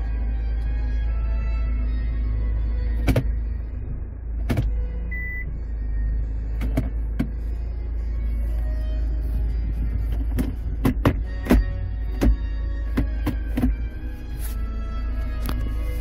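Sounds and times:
low car cabin hum: 0:00.0 - 0:16.0
short electronic beep: 0:05.1 - 0:05.5.

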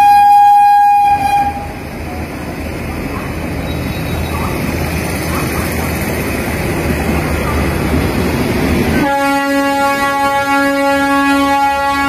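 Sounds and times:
locomotive horn long note: 0:00.0 - 0:01.8, 0:09.0 - 0:12.0
electric locomotive roaring: 0:00.0 - 0:12.0.

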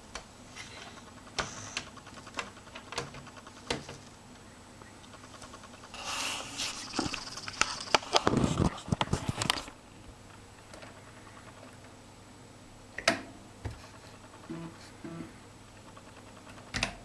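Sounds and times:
rustling: 0:00.0 - 0:12.0.

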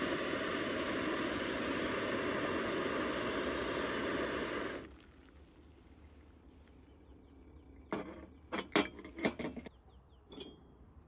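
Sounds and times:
stove flame roaring: 0:00.0 - 0:06.2
water boiling in pot: 0:00.0 - 0:09.7.

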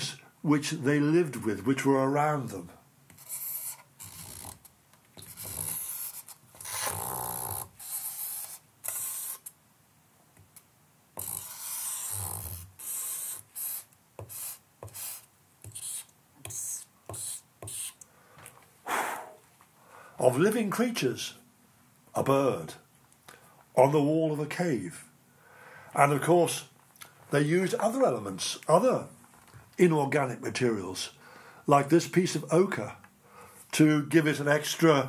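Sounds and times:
charcoal scratching on paper: 0:03.1 - 0:09.5, 0:11.2 - 0:18.0.

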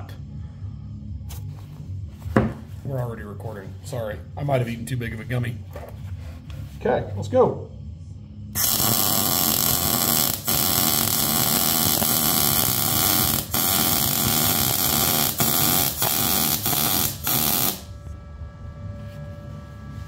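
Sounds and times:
welder arc crackling: 0:08.6 - 0:17.9.

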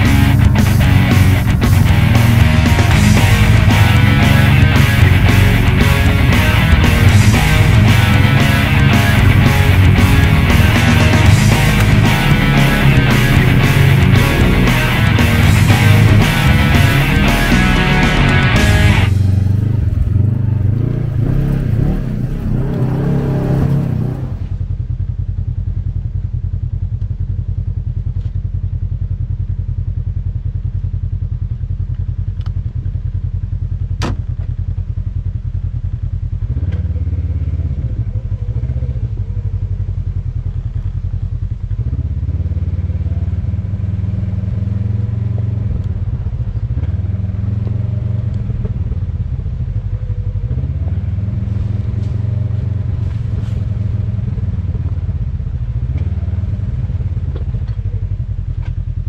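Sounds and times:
background music: 0:00.0 - 0:24.2
vehicle engine running: 0:00.0 - 0:59.0.

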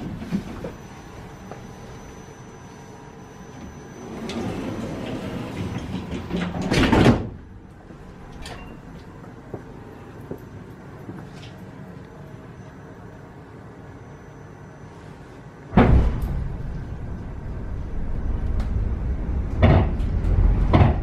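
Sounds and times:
sliding train door closing: 0:03.6 - 0:07.5.

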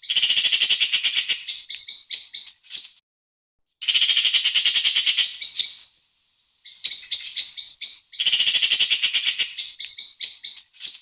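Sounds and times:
magpie rattling chatter: 0:00.0 - 0:02.6, 0:03.8 - 0:05.8, 0:06.7 - 0:11.0.

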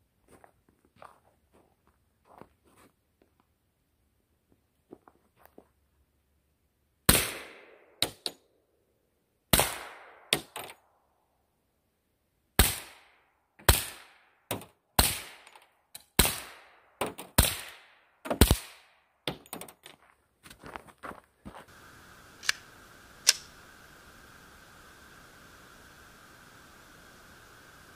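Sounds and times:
suppressed pistol shots with echo: 0:09.5 - 0:10.6
sharp cracks: 0:12.6 - 0:19.9, 0:21.7 - 0:26.4.

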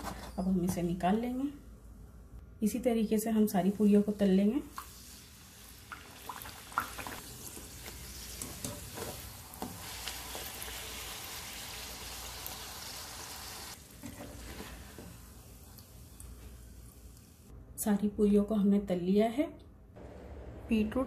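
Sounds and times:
food sizzling in hot oil: 0:04.7 - 0:17.5.

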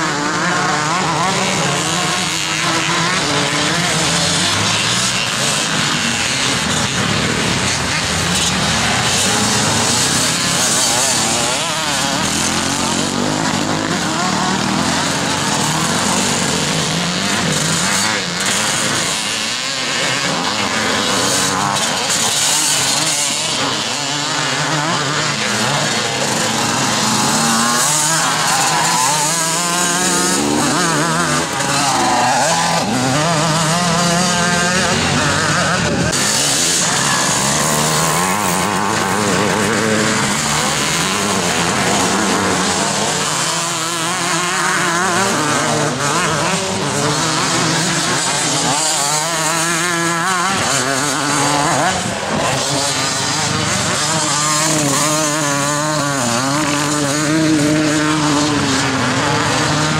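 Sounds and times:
motocross bike engines revving: 0:00.0 - 0:59.9.

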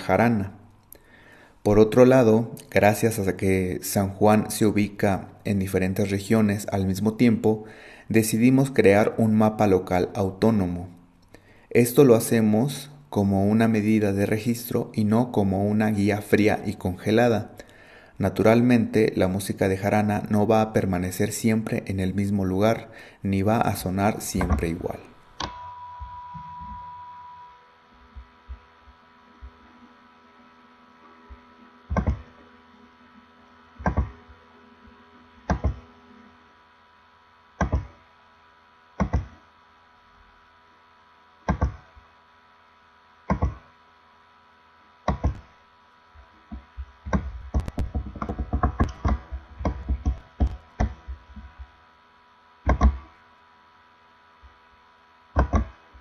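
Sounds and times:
steady electrical hum: 0:00.0 - 0:56.0
computer mouse clicks: 0:31.9 - 0:32.3, 0:33.8 - 0:34.2, 0:35.5 - 0:35.8, 0:37.6 - 0:37.9, 0:39.0 - 0:39.4, 0:41.5 - 0:41.8, 0:43.3 - 0:43.6, 0:45.1 - 0:45.5, 0:46.5 - 0:51.1, 0:52.6 - 0:53.0, 0:55.4 - 0:55.8.

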